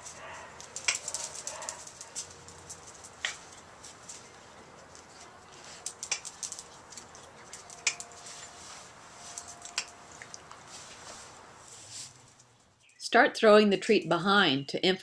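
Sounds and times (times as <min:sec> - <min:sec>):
sharp clicks and ticks: 0:00.6 - 0:03.4, 0:05.8 - 0:08.1.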